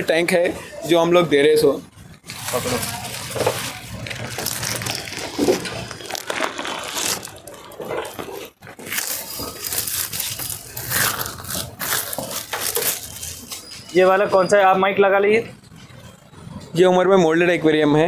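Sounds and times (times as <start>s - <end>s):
plastic bag crinkling: 2.2s - 13.7s.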